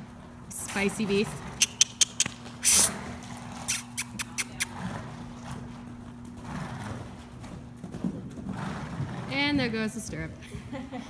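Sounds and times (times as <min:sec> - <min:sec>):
steady low hum: 0:00.0 - 0:11.0
horse hoofbeats on soft ground: 0:04.3 - 0:10.7.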